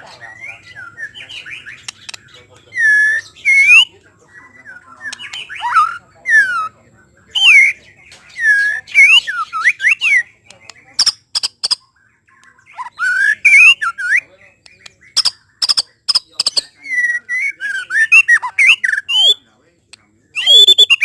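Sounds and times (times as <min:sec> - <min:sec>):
bird singing whistled phrases: 0:00.3 - 0:11.5, 0:12.4 - 0:19.4, 0:20.3 - 0:21.0
sharp clicks: 0:01.8 - 0:02.7.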